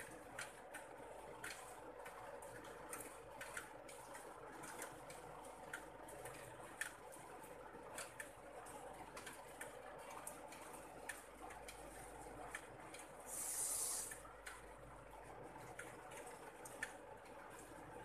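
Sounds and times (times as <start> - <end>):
raindrops ticking: 0.0 - 13.2, 14.0 - 18.0
light rain hiss: 12.5 - 14.6.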